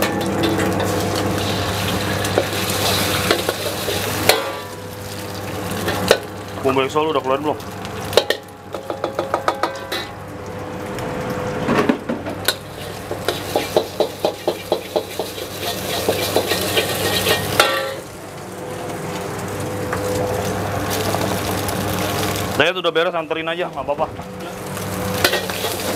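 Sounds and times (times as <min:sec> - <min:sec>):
metal spatula scraping a wok: 0:00.0 - 0:04.8, 0:12.5 - 0:18.0, 0:25.2 - 0:25.9
food sizzling: 0:00.0 - 0:25.9.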